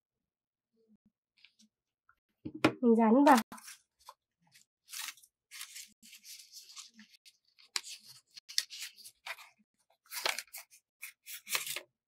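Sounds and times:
paper fans rustling: 3.3s - 11.9s.

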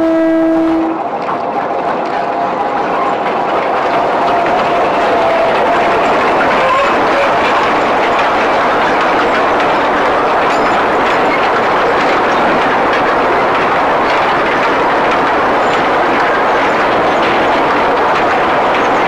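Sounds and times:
train wagons rumbling and rattling: 0.0s - 19.0s
wheel clicks over rail joints: 0.7s - 19.0s.

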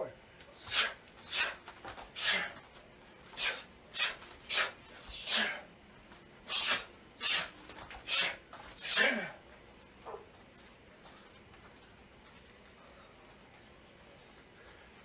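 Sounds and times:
sharp hissing exhalations: 0.5s - 5.7s, 6.4s - 9.4s.

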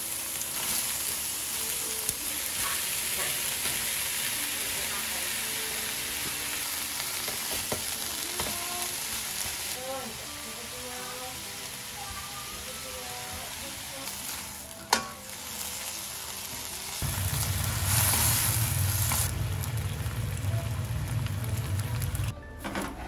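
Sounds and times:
food sizzling: 0.0s - 22.3s
low rumble with hiss: 17.0s - 22.3s.

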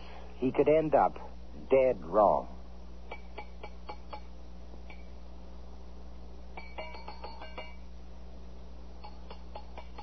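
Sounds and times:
steady low hum: 0.0s - 10.0s
ringing metallic clinks: 6.6s - 7.9s, 9.0s - 10.0s.

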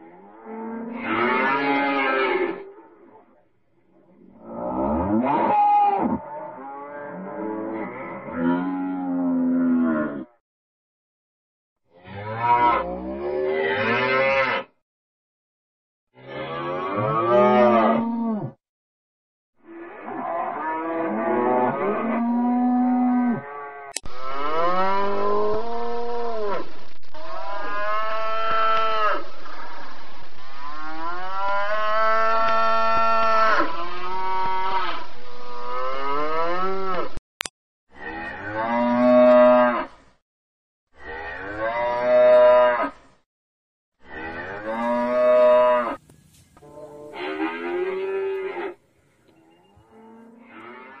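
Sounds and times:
cows mooing: 0.1s - 2.8s, 12.0s - 14.7s, 16.3s - 18.6s, 19.9s - 25.8s, 44.1s - 46.0s, 46.6s - 51.0s.

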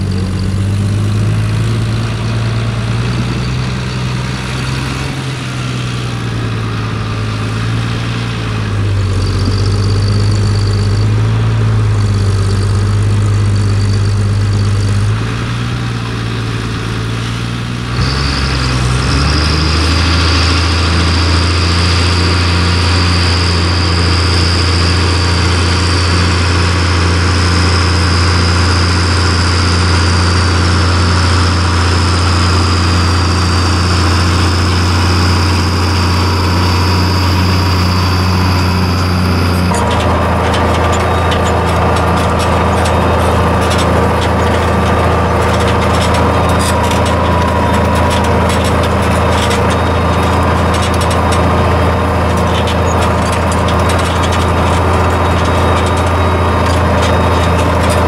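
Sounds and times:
tractor diesel engine running: 0.0s - 58.0s.

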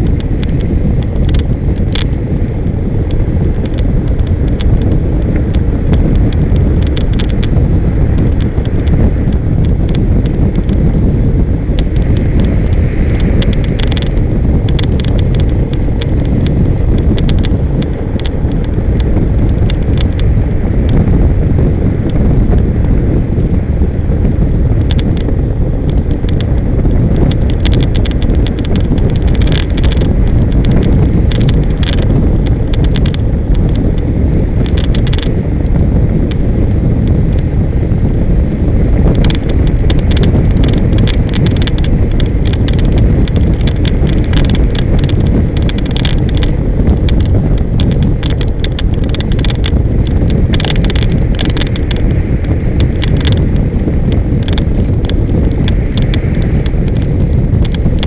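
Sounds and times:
wind buffeting microphone: 0.0s - 58.0s
buggy clicks and rattles: 27.2s - 33.8s, 39.1s - 52.2s.

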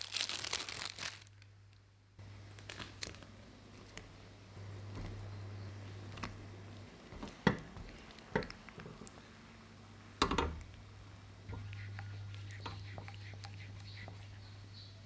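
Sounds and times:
low steady hum: 1.2s - 15.0s
spatula stirring thick sauce: 11.5s - 14.6s.

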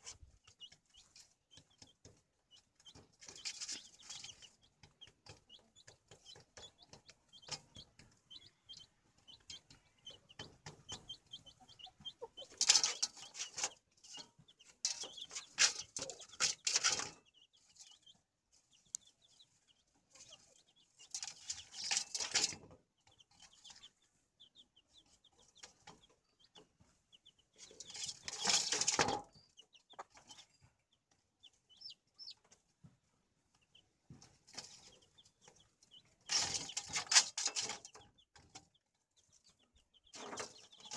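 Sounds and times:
hen clucking: 0.0s - 32.7s, 33.5s - 40.9s
chicks peeping: 0.0s - 40.9s.

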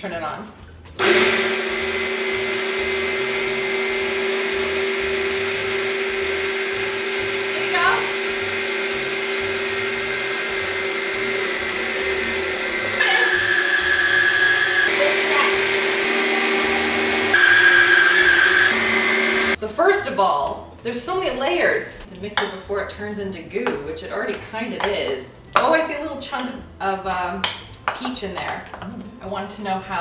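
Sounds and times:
electric motor hum and whine: 1.0s - 19.6s.

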